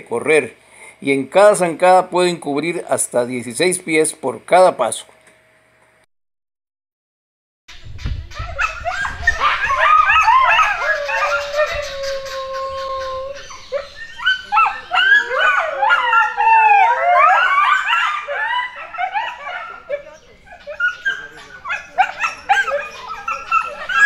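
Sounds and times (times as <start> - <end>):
coyotes howling and yipping: 8.4 - 24.0.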